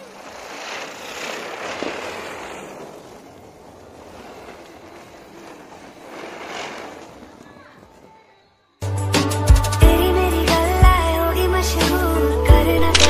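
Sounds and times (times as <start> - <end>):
ground firework hissing: 0.0 - 9.8.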